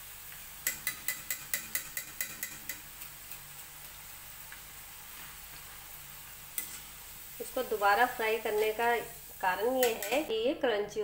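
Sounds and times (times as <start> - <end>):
oil frying sizzle: 0.0 - 10.7
metal skimmer tapping on pan rim: 0.6 - 2.9.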